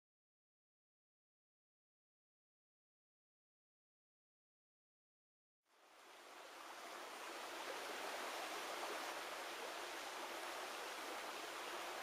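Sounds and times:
river rushing: 5.7s - 12.0s.

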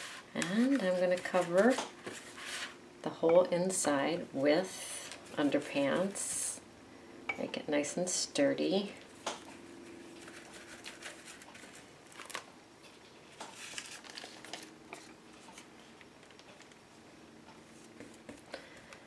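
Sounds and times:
faint steady hum: 0.0s - 19.0s
paper being handled: 9.9s - 12.5s, 13.3s - 16.8s.

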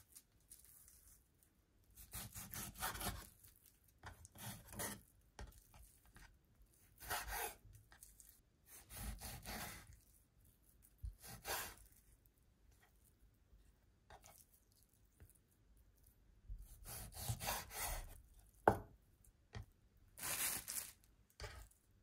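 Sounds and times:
knife slicing meat on board: 2.0s - 3.4s, 4.0s - 5.9s, 7.0s - 8.1s, 8.7s - 10.0s, 11.1s - 11.9s, 16.7s - 18.8s.

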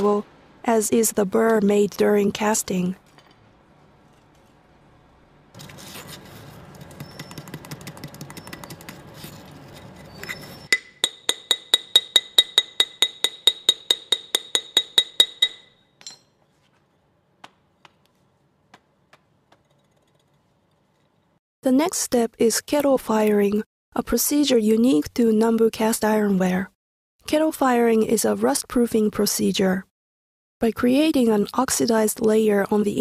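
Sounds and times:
ringing metal taps: 10.7s - 16.3s
scraping on cast iron: 19.5s - 21.4s.

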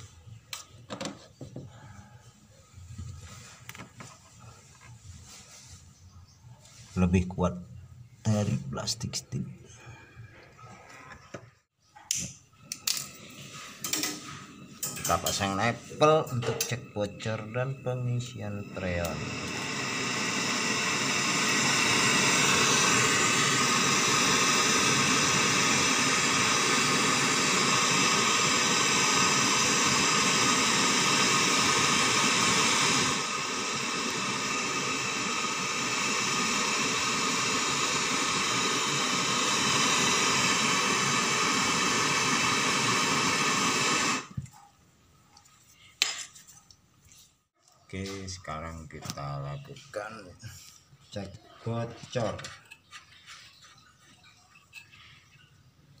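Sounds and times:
gas torch hissing: 12.1s - 44.4s.

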